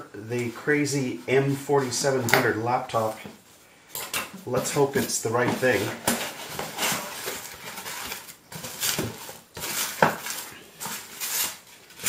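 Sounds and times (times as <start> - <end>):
cardboard and foam rustling: 4.5 - 12.0.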